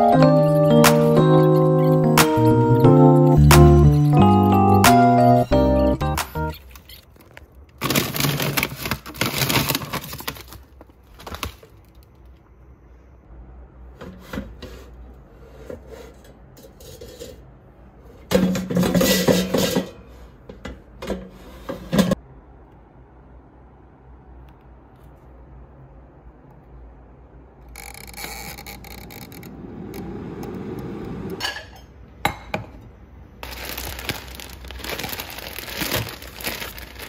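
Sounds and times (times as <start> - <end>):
basket rustling and scraping: 33.4 - 37.0.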